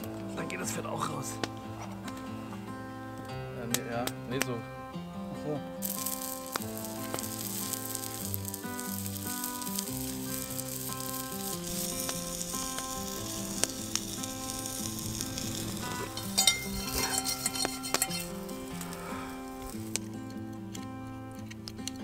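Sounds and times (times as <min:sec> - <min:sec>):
soft background music: 0:00.0 - 0:22.0
sausage sizzling in a pan: 0:05.8 - 0:20.1
sharp pops of fat: 0:06.0 - 0:15.9.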